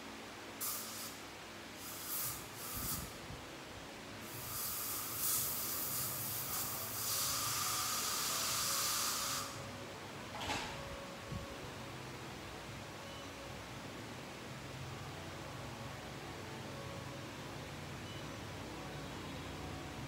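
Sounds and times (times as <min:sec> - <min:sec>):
dental equipment hissing: 0:00.6 - 0:01.2, 0:01.8 - 0:03.2, 0:04.2 - 0:09.6.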